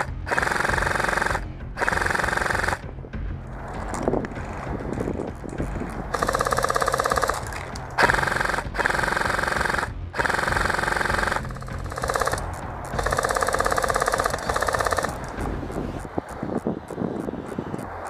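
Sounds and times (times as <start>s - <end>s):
airsoft rifle automatic fire: 0.0s - 2.8s, 6.1s - 15.2s.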